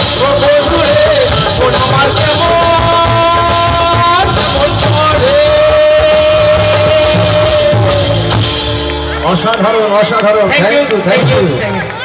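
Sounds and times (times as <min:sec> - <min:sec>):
man singing into microphone: 0:00.0 - 0:08.3
live band playing: 0:00.0 - 0:12.0.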